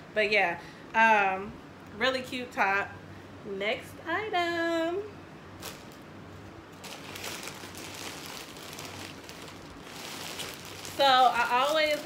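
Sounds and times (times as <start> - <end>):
clothing and packaging rustling: 5.6 - 6.0, 6.7 - 12.0.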